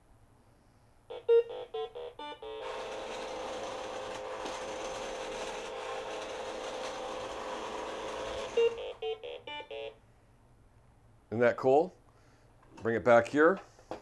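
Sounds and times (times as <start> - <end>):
toy electric motors whining: 2.4 - 9.9.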